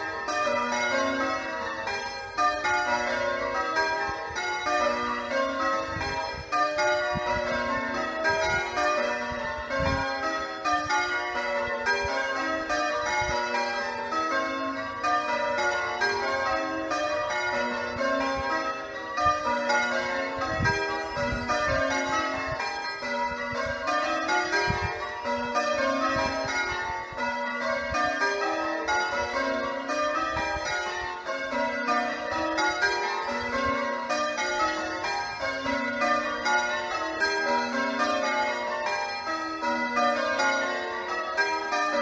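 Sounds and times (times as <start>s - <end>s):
church bells ringing changes: 0.0s - 42.0s.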